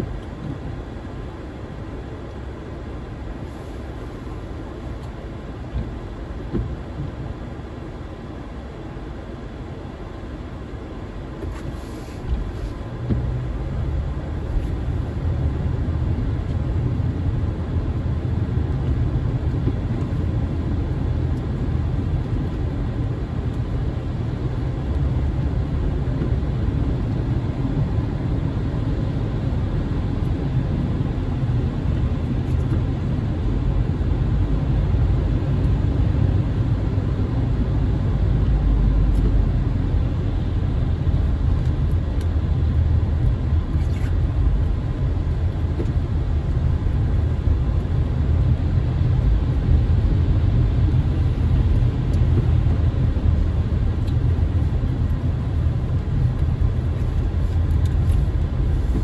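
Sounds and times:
car engine and tyre rumble: 0.0s - 59.0s.

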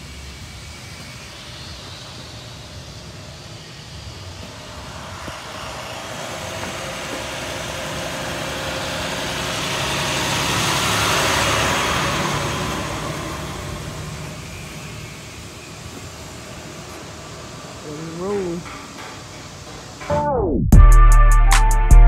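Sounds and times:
vehicle passing by: 4.4s - 15.0s.

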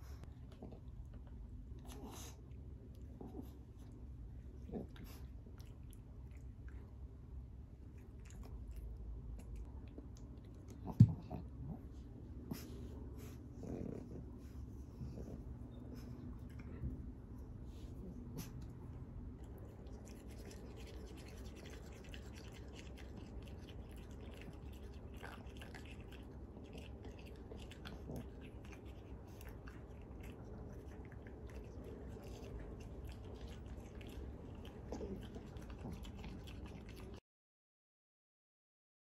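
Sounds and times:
low room hum: 0.0s - 37.2s.

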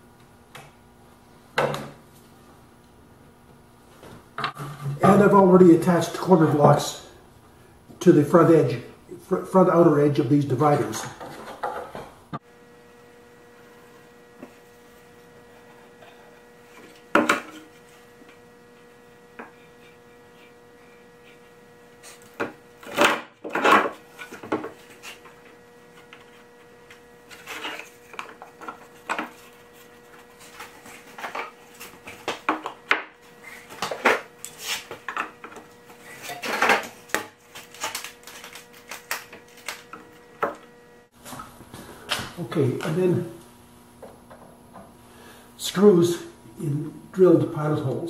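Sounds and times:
faint steady hum: 0.0s - 48.0s.

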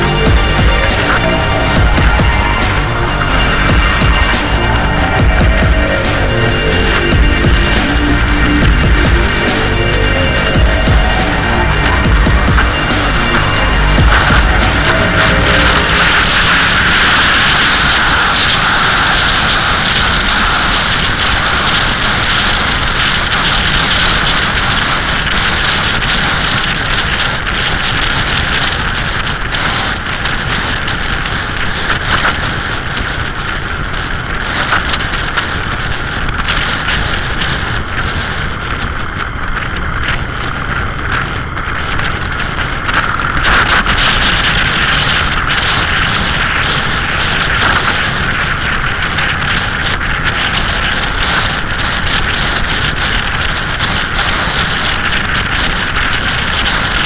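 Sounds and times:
motorcycle engine cruising: 0.0s - 18.1s
wind rushing over microphone: 0.0s - 57.0s.

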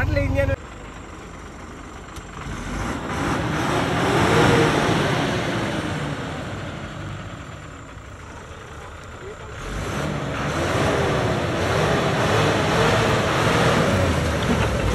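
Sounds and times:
vehicle engine revving: 2.1s - 14.9s.

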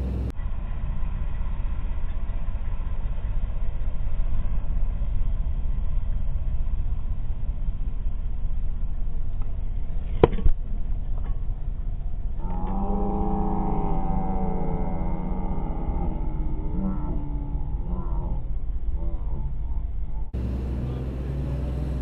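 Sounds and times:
wind rumble on microphone: 0.0s - 22.0s
wavering pitched tones: 4.0s - 20.4s
arrow hitting ball crack: 10.0s - 11.3s.

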